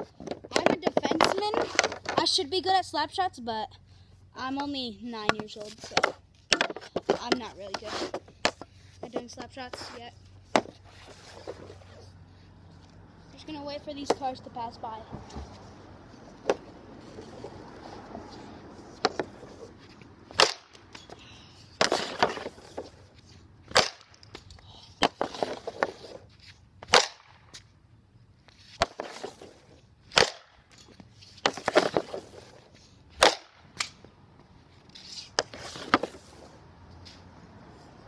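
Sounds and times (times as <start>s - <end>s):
stick scraping: 0.0s - 2.8s, 4.4s - 27.7s, 28.4s - 34.0s, 34.6s - 38.0s
hockey stick slap shot crack: 20.3s - 20.8s, 23.7s - 24.3s, 26.8s - 27.4s, 30.1s - 30.6s, 33.2s - 34.0s.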